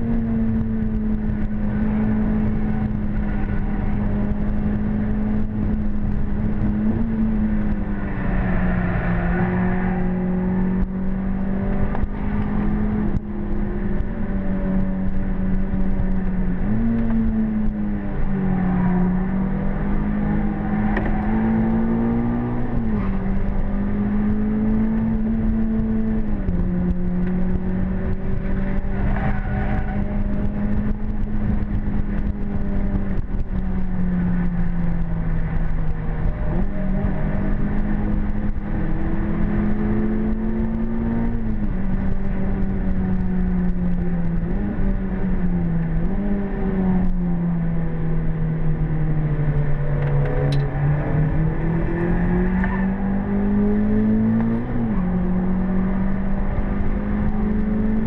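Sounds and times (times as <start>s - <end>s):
car engine pulling hard: 0.0s - 58.0s
road noise: 0.0s - 58.0s
wind noise: 0.0s - 58.0s.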